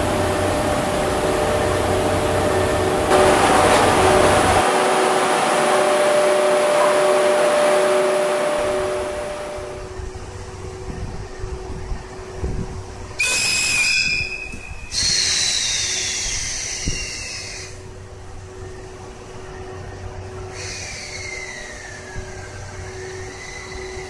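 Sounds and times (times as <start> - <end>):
locomotive low hum: 0.0 - 24.0
locomotive whistle blast: 3.1 - 9.9, 13.2 - 17.8.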